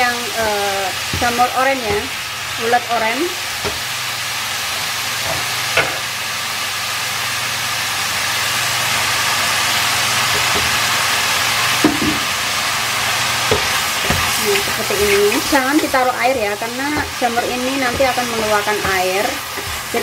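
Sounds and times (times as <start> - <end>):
mushrooms and onion sizzling in oil: 0.0 - 20.0
wooden spatula knocking pan: 0.4 - 2.1, 11.8 - 12.3, 13.4 - 20.0.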